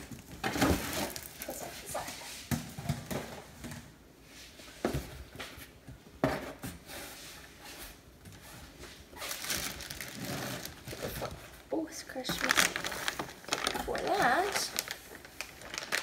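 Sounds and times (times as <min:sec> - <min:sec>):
plastic wrapping rustling: 0:00.0 - 0:04.7, 0:06.8 - 0:16.0
items thudding on cardboard: 0:06.2 - 0:06.9.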